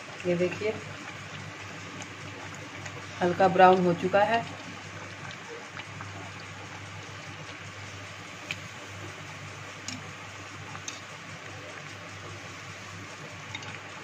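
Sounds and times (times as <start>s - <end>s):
food sizzling in hot oil: 0.0s - 14.0s.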